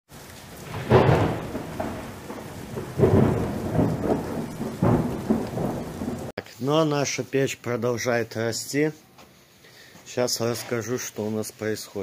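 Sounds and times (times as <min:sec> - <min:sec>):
rain-like hiss: 0:00.1 - 0:12.0
deep thunder-like rumbling: 0:00.3 - 0:06.3.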